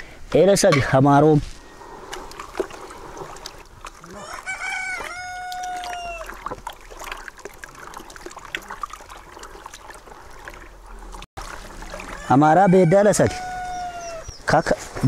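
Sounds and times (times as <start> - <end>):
water sloshing in basin: 2.0 - 12.6
rooster crowing: 4.1 - 6.3, 12.0 - 14.3.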